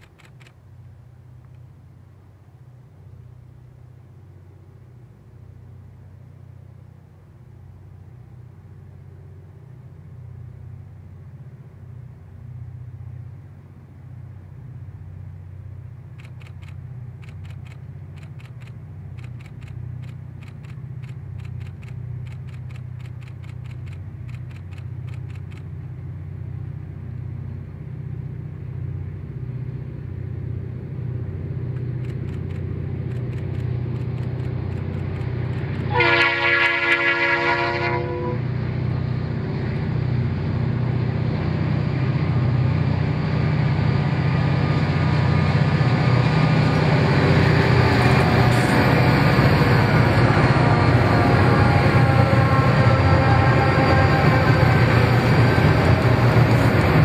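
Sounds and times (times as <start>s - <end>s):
quick sharp clicks: 0.0s - 0.6s, 16.1s - 25.7s, 31.7s - 35.9s
diesel locomotive engine rumble: 0.0s - 57.0s.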